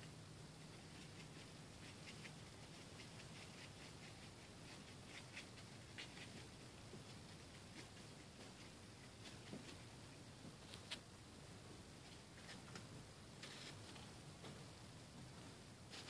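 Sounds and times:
paintbrush scratching stirring paint: 0:00.8 - 0:09.9.

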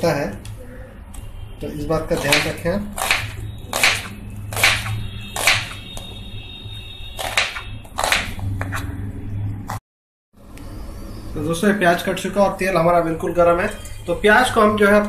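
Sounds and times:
knife slicing onion on cutting board: 0:02.2 - 0:05.8, 0:07.2 - 0:08.9.

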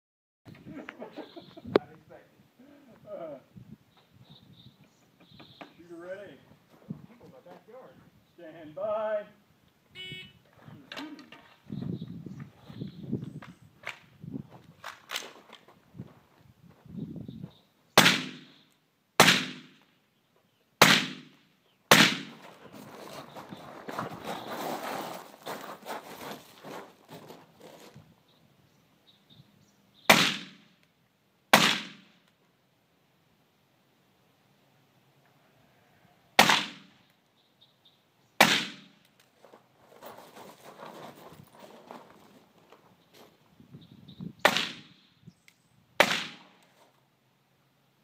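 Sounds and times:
rifle shots with echo: 0:19.2 - 0:19.8, 0:20.8 - 0:22.4, 0:30.1 - 0:30.7, 0:31.5 - 0:32.1, 0:36.4 - 0:36.9, 0:46.0 - 0:46.6
footsteps crunching on gravel: 0:22.3 - 0:28.1, 0:39.3 - 0:43.5.

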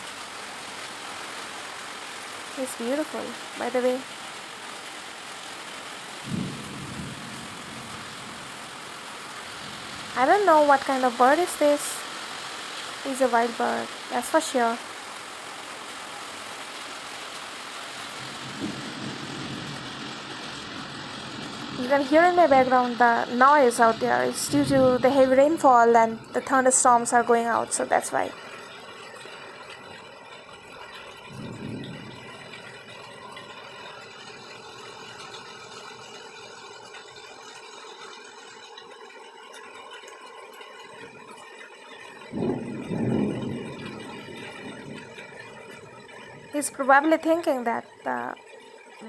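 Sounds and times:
heavy rainfall hiss: 0:00.0 - 0:49.0
low rumble: 0:42.4 - 0:46.5.

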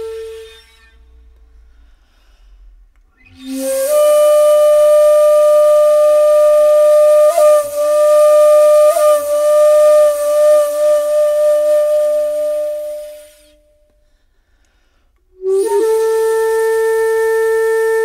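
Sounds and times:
bamboo flute held note: 0:00.0 - 0:01.8.

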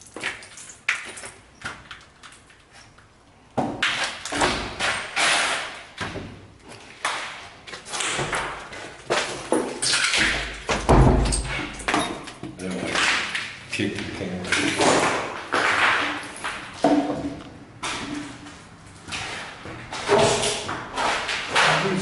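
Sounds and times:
doors knocking and thumping: 0:08.1 - 0:13.3, 0:14.5 - 0:18.3.

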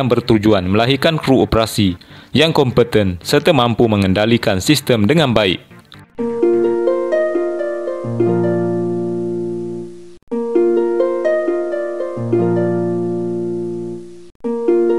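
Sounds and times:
plucked arpeggio over low chord: 0:05.6 - 0:14.9.

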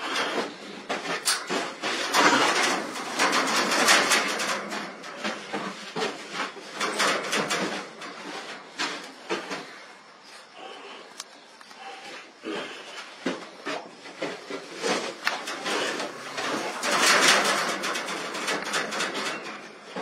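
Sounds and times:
wire-mesh panels rattling: 0:00.0 - 0:09.9, 0:13.5 - 0:20.0
rough rushing noise: 0:14.7 - 0:20.0.

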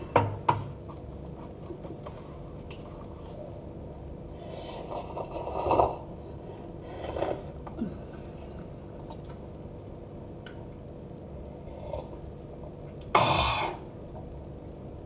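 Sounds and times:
person slurping noodles: 0:06.8 - 0:07.6.

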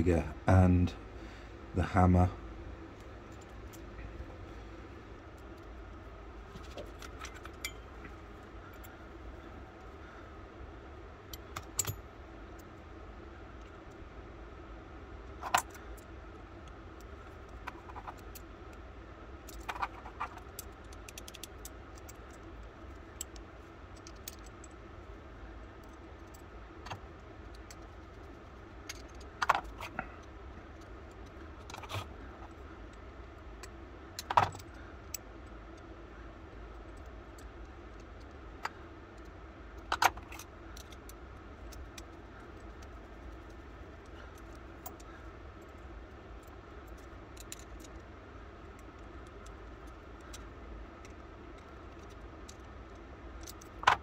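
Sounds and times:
small metal parts clinking: 0:11.3 - 0:12.1, 0:19.4 - 0:24.8, 0:46.4 - 0:48.0.

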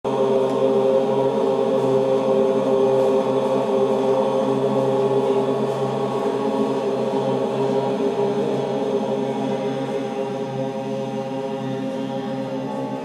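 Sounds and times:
chanting in sustained tones: 0:00.0 - 0:13.0.

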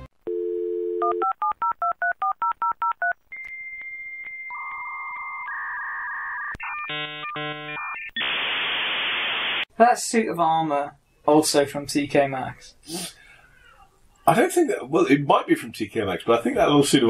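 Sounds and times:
modem warbling beeps: 0:04.5 - 0:09.6
modem data hiss: 0:04.5 - 0:09.7.

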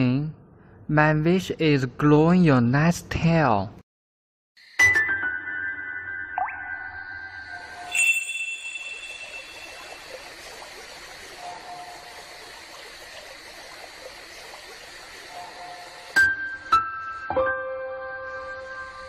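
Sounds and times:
bright ringing strikes: 0:04.8 - 0:10.3
steady hiss: 0:08.6 - 0:17.4.

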